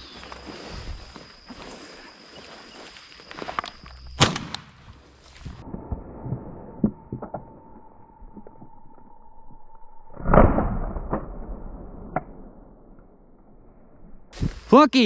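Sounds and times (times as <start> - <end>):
footsteps through tall grass: 0.0 - 4.2, 4.8 - 5.6, 14.4 - 14.8.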